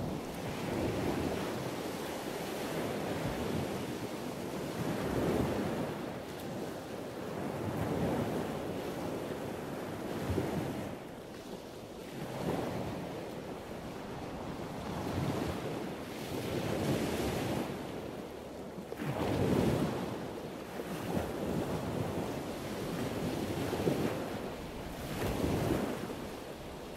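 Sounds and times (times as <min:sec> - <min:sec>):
wind rushing over microphone: 0:00.0 - 0:11.1, 0:19.0 - 0:26.9.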